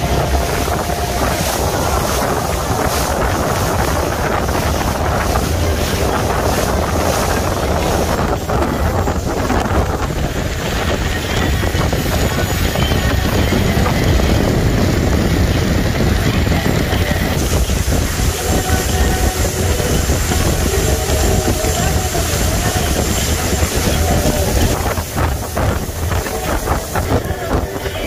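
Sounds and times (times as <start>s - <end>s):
boat engine rumble: 0.0s - 28.0s
boat wake churning: 0.0s - 28.0s
wind buffeting microphone: 0.0s - 28.0s.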